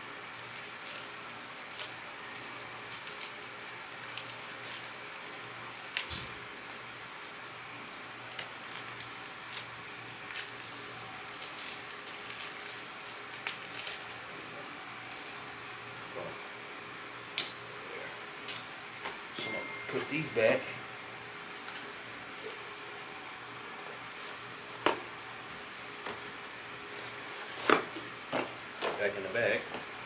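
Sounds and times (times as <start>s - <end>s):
background hiss and hum: 0.0s - 30.0s
plastic packaging crinkling: 0.1s - 6.8s, 7.8s - 14.3s.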